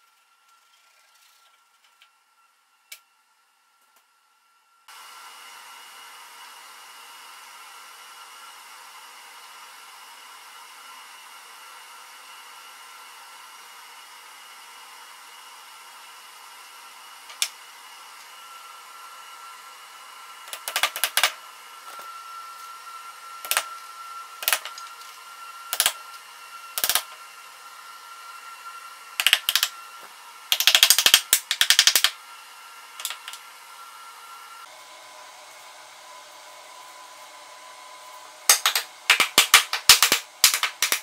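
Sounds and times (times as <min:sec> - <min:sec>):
faint high whine: 0:00.0 - 0:30.5
clicks and taps: 0:20.5 - 0:21.4, 0:25.7 - 0:26.0, 0:29.2 - 0:29.7, 0:30.5 - 0:32.1, 0:38.5 - 0:41.0.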